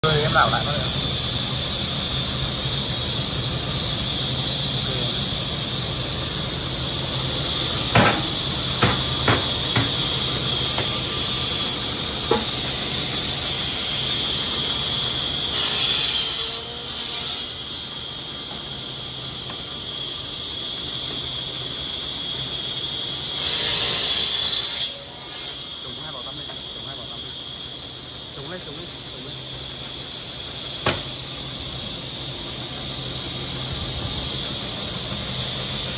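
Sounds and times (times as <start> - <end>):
sharp knocks: 30.8 - 31.1.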